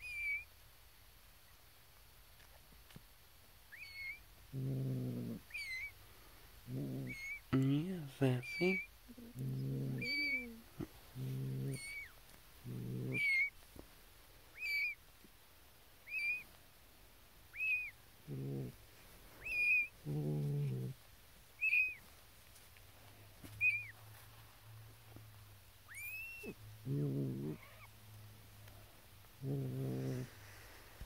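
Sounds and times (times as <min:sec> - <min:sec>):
cat calling: 0:03.7 - 0:04.2, 0:05.4 - 0:05.9, 0:06.9 - 0:07.5, 0:09.6 - 0:10.9, 0:11.5 - 0:13.6, 0:14.5 - 0:15.0, 0:16.0 - 0:16.4, 0:17.5 - 0:18.7, 0:21.6 - 0:22.0, 0:25.9 - 0:26.6, 0:27.3 - 0:27.9
kittens mewing: 0:03.7 - 0:06.0, 0:06.6 - 0:13.6, 0:14.6 - 0:15.0, 0:16.1 - 0:16.4, 0:17.5 - 0:18.8, 0:19.4 - 0:21.0, 0:25.9 - 0:28.0.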